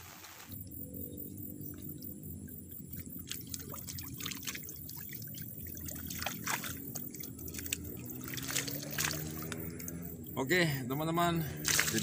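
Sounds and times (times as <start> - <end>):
water trickling and dripping: 1.4 - 10.4, 11.6 - 12.0
water sloshing around wading person: 1.7 - 10.2, 11.5 - 12.0.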